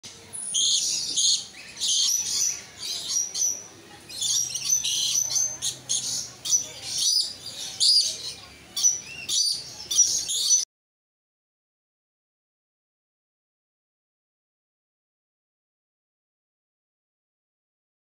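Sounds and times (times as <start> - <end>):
parrots squawking and chirping: 0.6 - 10.6.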